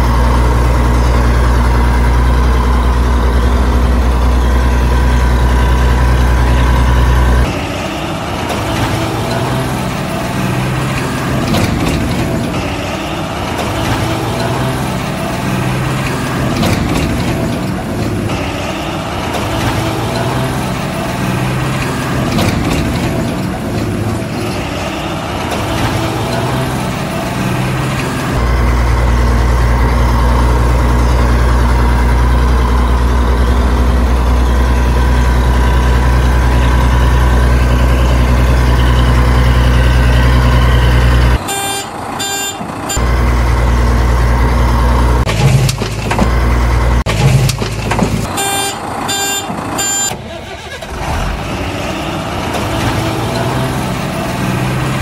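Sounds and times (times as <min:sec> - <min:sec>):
truck engine idling: 0:00.0 - 0:55.0
reversing beeps: 0:48.3 - 0:50.2.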